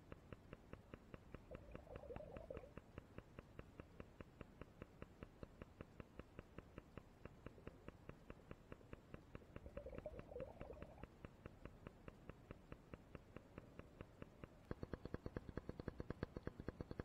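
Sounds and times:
faint steady ticking: 0.0s - 17.0s
faint wavering sound: 1.5s - 2.7s, 9.6s - 11.1s.

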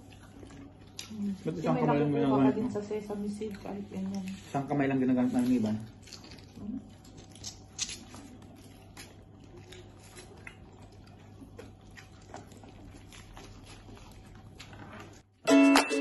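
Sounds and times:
low steady hum: 0.0s - 16.0s
soft chewing and finger-sucking: 3.3s - 15.2s.

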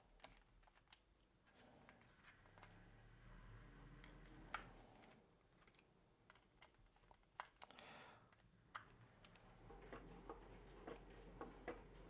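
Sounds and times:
screwdriver clicks and ticks: 0.0s - 1.1s, 4.0s - 9.6s.

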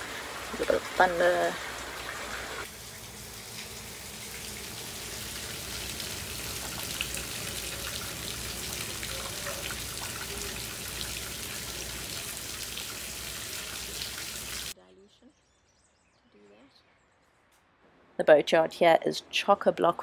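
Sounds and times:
raindrops ticking close by: 0.0s - 14.8s
steady rain hiss: 0.0s - 14.8s.

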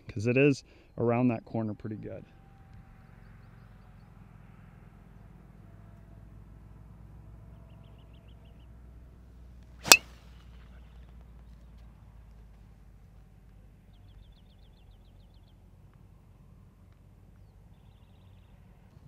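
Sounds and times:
golf club striking ball: 9.8s - 10.2s.

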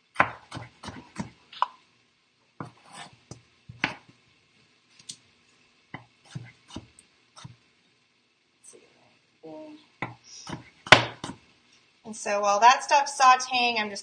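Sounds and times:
knife chopping on wooden board: 0.2s - 1.4s, 2.6s - 3.1s, 3.7s - 4.1s, 6.0s - 7.6s, 10.0s - 11.4s.

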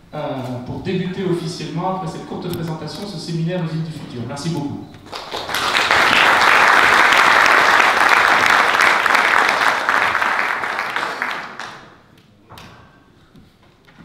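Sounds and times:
audience applauding: 5.0s - 12.1s.

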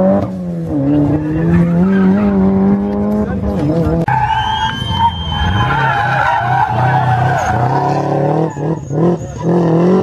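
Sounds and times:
car engine pulling hard: 0.0s - 10.0s
tyres squealing: 4.1s - 9.6s.

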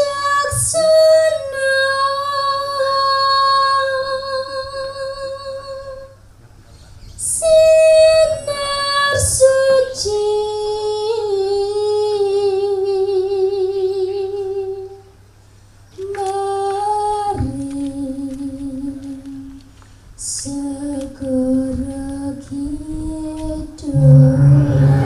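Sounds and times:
woman singing with vibrato: 0.0s - 6.1s, 7.2s - 15.0s, 20.3s - 25.0s.

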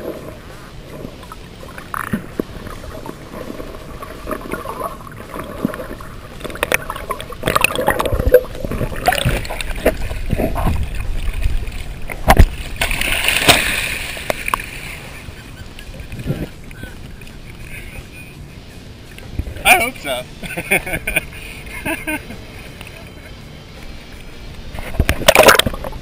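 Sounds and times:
muffled underwater noise: 0.0s - 12.8s, 14.2s - 26.0s
fish thrashing and splashing: 0.0s - 17.9s, 24.8s - 26.0s.

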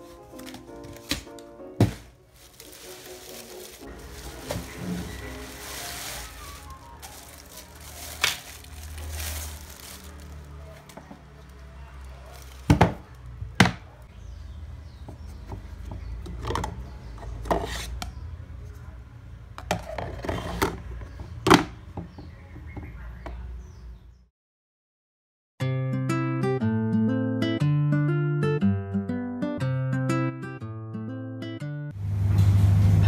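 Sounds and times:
plastic bag crinkling: 0.0s - 13.4s.

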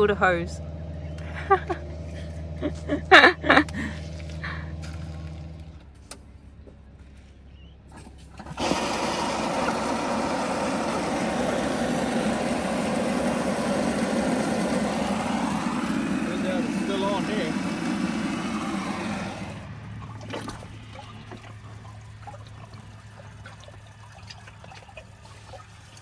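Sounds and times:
water rushing from hose: 8.2s - 26.0s.

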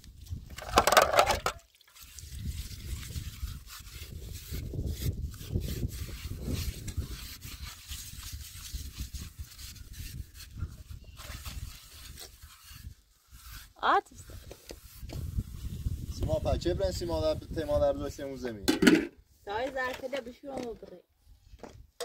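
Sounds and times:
scouring pad scrubbing plastic plate: 0.7s - 16.4s.

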